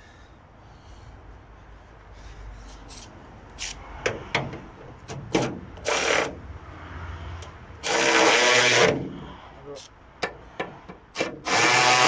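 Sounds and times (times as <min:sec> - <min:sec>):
short rasping burst: 0:07.8 - 0:09.9, 0:11.2 - 0:12.0.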